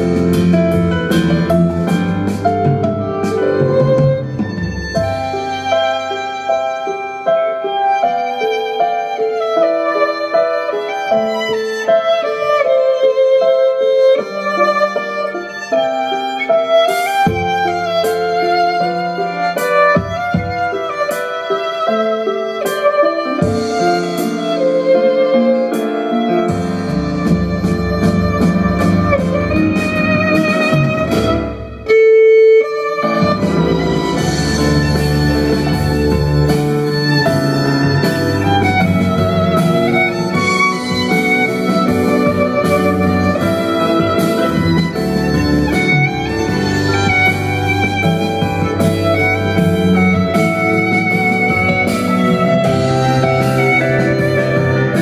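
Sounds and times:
plucked double bass: 0.0s - 5.2s, 26.6s - 31.7s, 33.1s - 55.0s
contrabass notes: 0.0s - 6.1s, 26.2s - 55.0s
violin melody: 0.0s - 55.0s.

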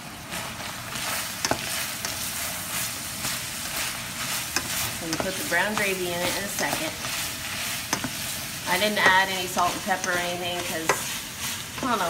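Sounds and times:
meat sizzling in a skillet: 0.0s - 12.0s
spoon stirring and scraping: 0.9s - 12.0s
spoon knocking against pan: 7.9s - 8.2s.

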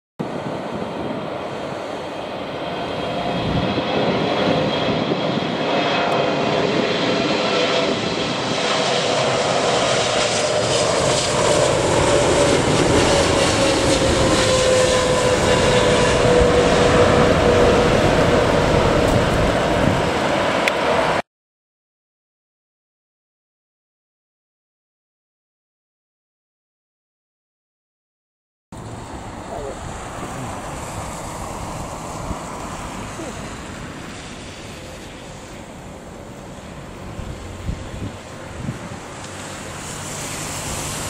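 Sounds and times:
engine whine sliding down: 0.2s - 21.2s
jet engines rushing: 0.2s - 21.2s, 28.8s - 41.0s.

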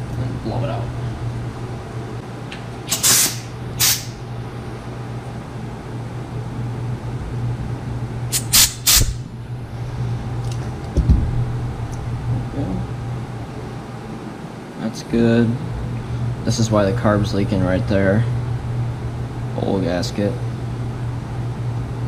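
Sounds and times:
steady low hum: 0.0s - 22.0s
hissing spray blasts: 2.9s - 4.2s, 8.3s - 9.2s
thump: 11.0s - 11.5s.

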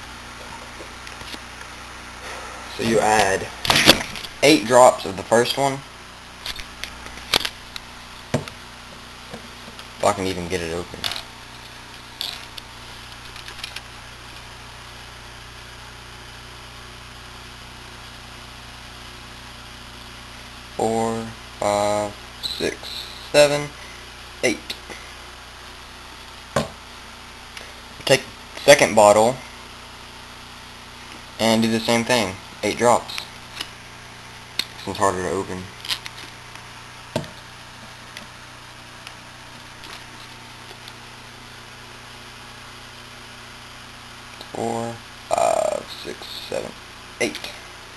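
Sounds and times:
low hum and hiss: 0.0s - 47.9s
plastic bottle knocking on wood: 26.6s - 26.8s.

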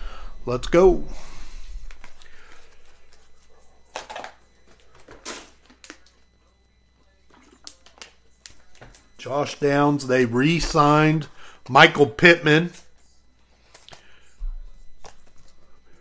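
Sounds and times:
trading cards rustling and clicking: 1.8s - 3.3s.

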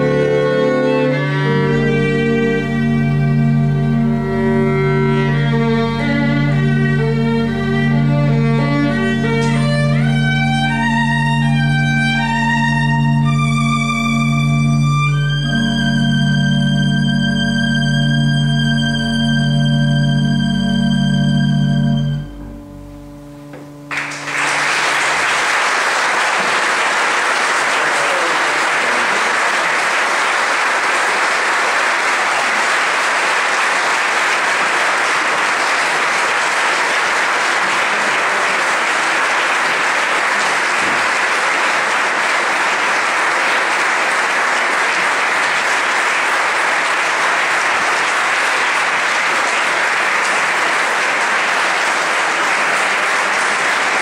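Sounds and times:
audience applauding: 0.0s - 18.2s, 23.9s - 54.0s
organ note: 0.0s - 30.7s.

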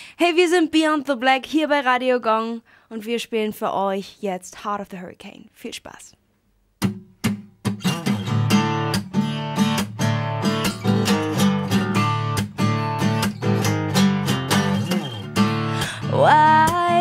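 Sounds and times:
acoustic guitar strumming: 6.8s - 17.0s.

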